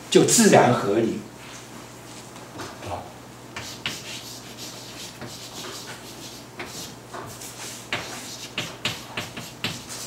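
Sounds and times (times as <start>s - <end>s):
chalk on blackboard: 3.6s - 10.0s.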